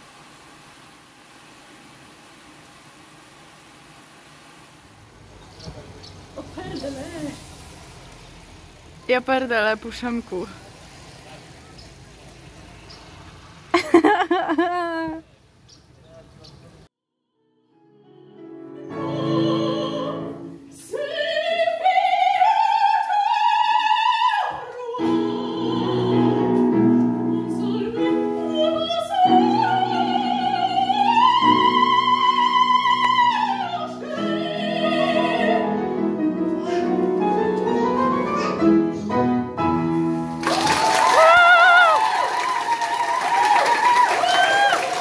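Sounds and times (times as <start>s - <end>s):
piano chords: 17.4s - 20.8s, 25.0s - 40.5s
woman singing opera: 18.1s - 36.5s
applause: 40.4s - 45.0s.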